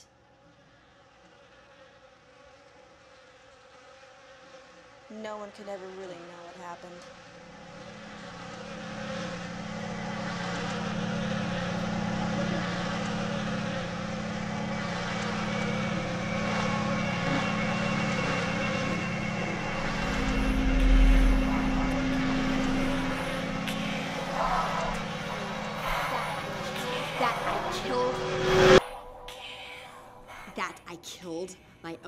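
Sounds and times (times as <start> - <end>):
low droning score: 0.0 - 31.9
deep rumble: 7.6 - 30.6.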